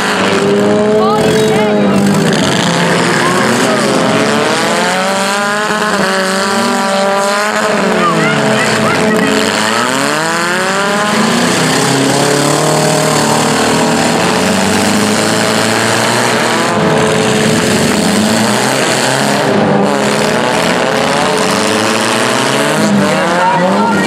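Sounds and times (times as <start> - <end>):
car engines revving: 0.0 - 24.0.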